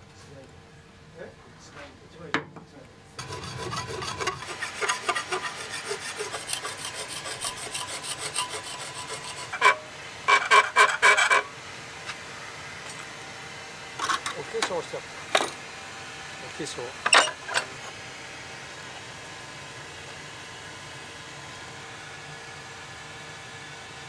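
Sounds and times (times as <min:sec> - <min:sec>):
file rasping on steel blade: 0:03.2 - 0:11.5.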